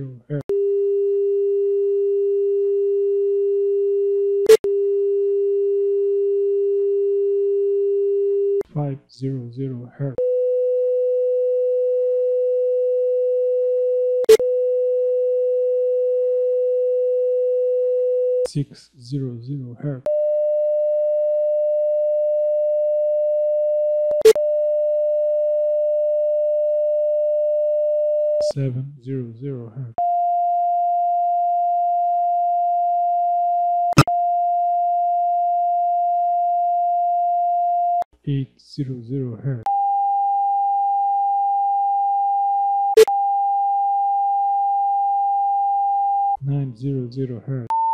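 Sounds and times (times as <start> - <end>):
sine test tone: 0.5 - 8.6, 39.7 - 46.4
sine-wave test tone: 0.5 - 8.6, 10.2 - 18.4, 20.1 - 28.4, 39.7 - 46.4.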